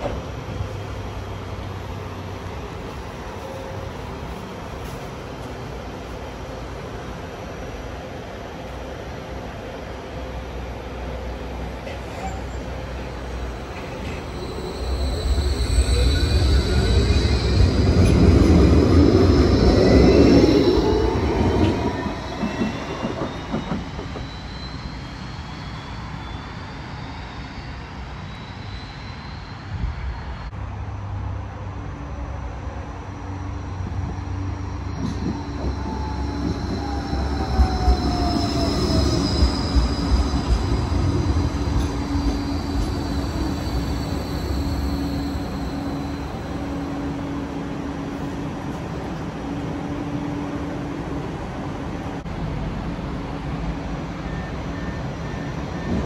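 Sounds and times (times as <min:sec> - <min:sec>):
rail noise: 0:00.0 - 0:56.0
tram electric motor whine: 0:09.4 - 0:30.2, 0:32.1 - 0:56.0.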